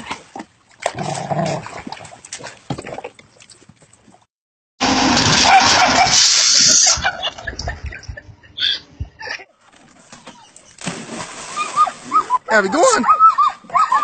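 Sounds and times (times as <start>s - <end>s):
bicycle splashing into lake: 4.8s - 7.1s, 10.8s - 12.4s
dog splashing in water: 10.0s - 12.3s.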